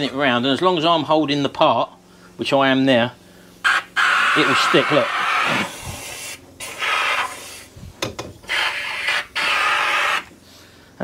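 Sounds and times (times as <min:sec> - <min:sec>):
powder coating gun hissing bursts: 0:03.5 - 0:07.8, 0:08.4 - 0:10.3.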